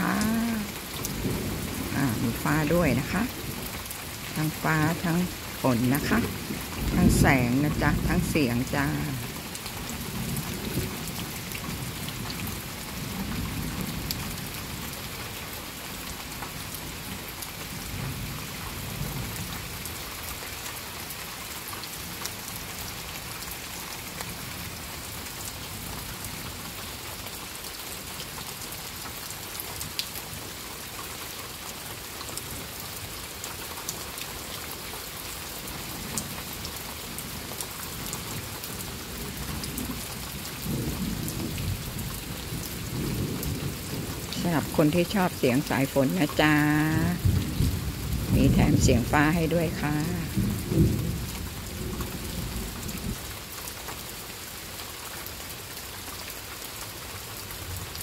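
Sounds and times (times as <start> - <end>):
steady rain on leaves: 0.0 - 58.0
distant thunder rumbles: 46.8 - 53.2.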